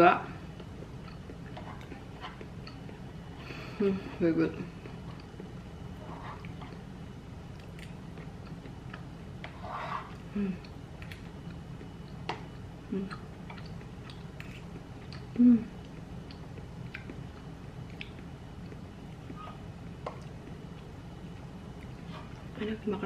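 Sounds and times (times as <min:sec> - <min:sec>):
person chewing: 0:00.5 - 0:03.3, 0:04.8 - 0:22.5
person humming: 0:10.3 - 0:10.7, 0:12.9 - 0:13.2, 0:15.4 - 0:15.8.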